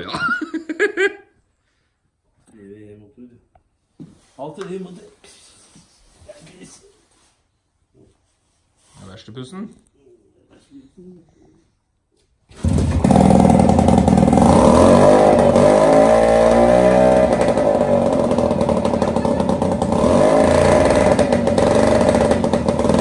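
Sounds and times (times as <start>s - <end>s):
outboard motor running: 16.8s - 23.0s.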